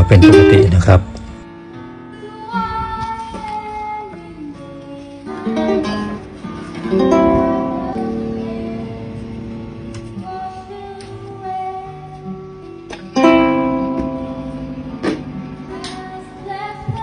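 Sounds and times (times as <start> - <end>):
guitar chords strummed through amp: 0.0 - 1.7, 12.4 - 16.3.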